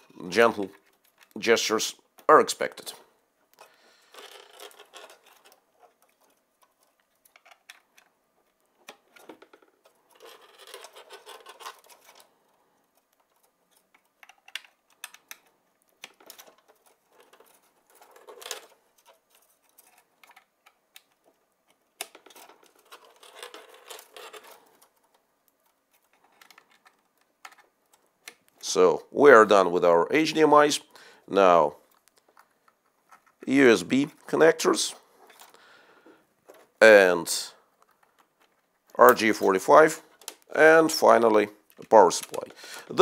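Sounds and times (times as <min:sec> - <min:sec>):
cable rustling: 0:00.0 - 0:28.8.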